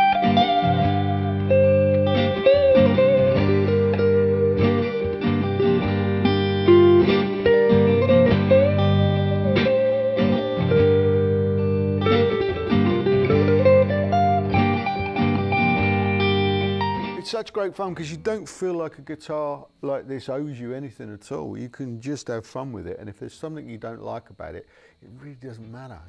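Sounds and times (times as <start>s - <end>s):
electric guitar lead line: 0.0s - 17.4s.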